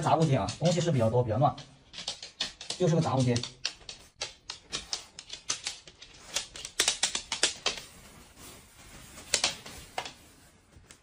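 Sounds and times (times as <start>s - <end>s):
dog claws clicking on wood floor: 0.0s - 8.0s.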